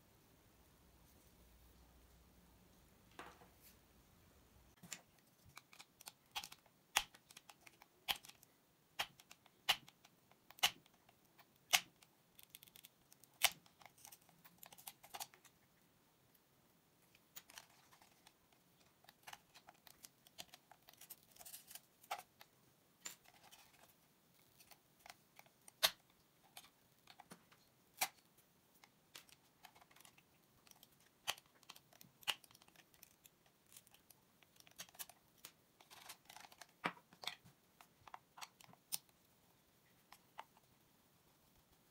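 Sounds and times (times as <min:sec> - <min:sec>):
sharp plastic clicks: 0:04.8 - 0:15.5.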